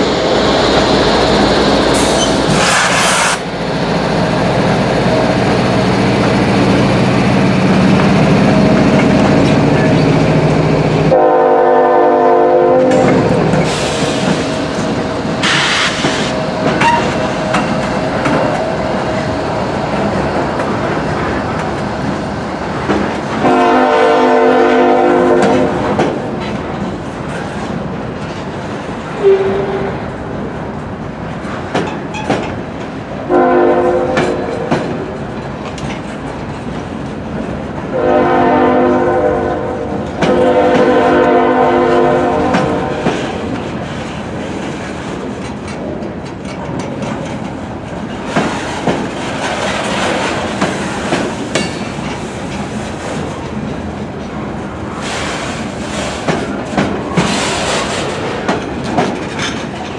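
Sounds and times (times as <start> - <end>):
train cars rumbling and clacking: 0.0 - 59.9
locomotive air horn blasts: 11.1 - 13.3, 23.4 - 25.8, 33.3 - 34.5, 37.9 - 43.0.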